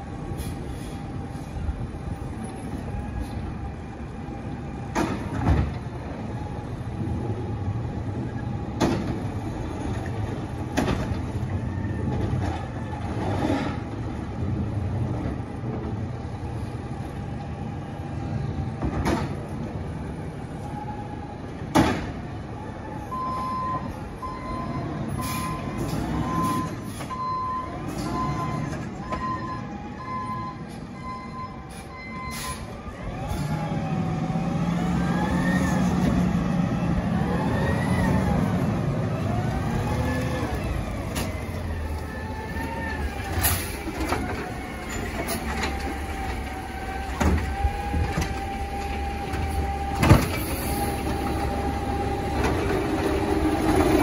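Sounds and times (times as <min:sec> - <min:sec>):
reversing alarm beeping: 0:23.0 - 0:32.8
diesel engine revving: 0:23.1 - 0:54.0.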